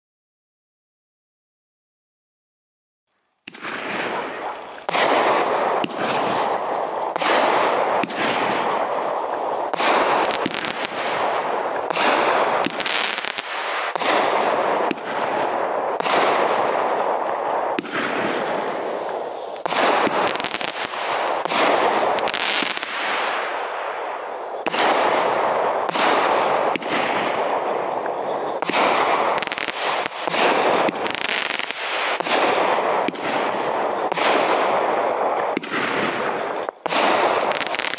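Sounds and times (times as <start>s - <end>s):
fireworks bangs: 3.4s - 37.9s
fireworks hissing: 3.9s - 5.3s, 5.9s - 14.7s, 18.2s - 26.7s, 27.4s - 32.8s, 36.1s - 37.9s.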